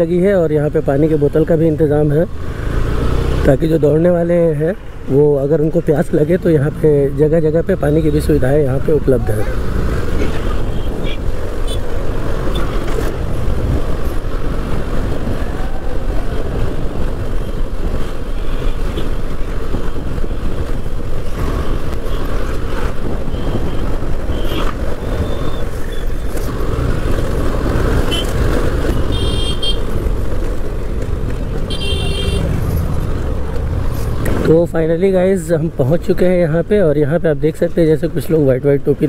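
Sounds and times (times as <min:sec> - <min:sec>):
road traffic: 0:00.0 - 0:39.0
wind rumble on microphone: 0:09.6 - 0:29.1
vehicle horn toot: 0:28.1 - 0:28.3, 0:28.9 - 0:29.8, 0:31.7 - 0:32.5.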